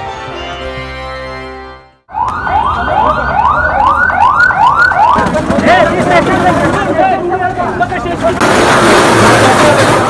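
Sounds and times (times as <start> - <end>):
emergency siren yelping: 2.1 - 5.4.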